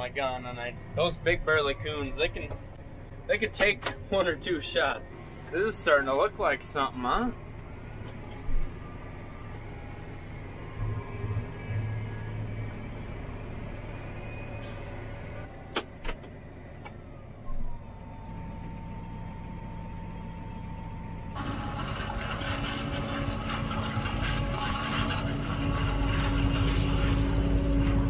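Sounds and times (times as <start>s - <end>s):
tractor engine running: 17.8s - 28.0s.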